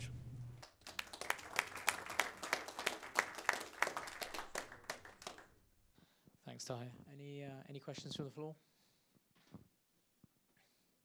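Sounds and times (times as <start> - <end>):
audience applauding: 0.6 - 5.6.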